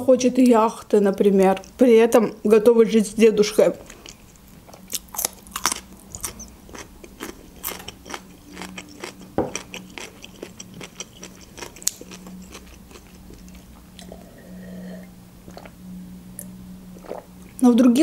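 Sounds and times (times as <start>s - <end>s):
faint steady hum: 0.0s - 18.0s
chewing crisp cucumber: 3.8s - 14.2s.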